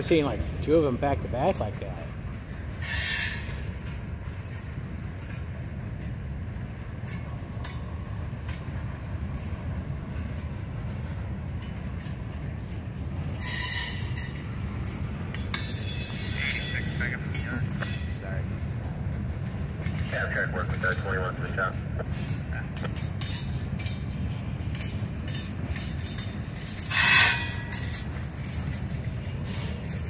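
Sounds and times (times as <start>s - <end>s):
rail clicks: 0.0s - 30.0s
train wheels rumbling on rail: 0.0s - 30.0s
high wheel squeal: 2.8s - 4.6s, 13.4s - 14.4s, 15.6s - 18.2s, 26.8s - 28.0s.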